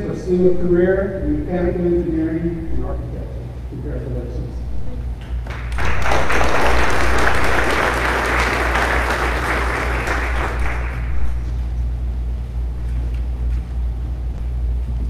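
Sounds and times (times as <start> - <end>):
audience applauding: 5.4 - 11.6.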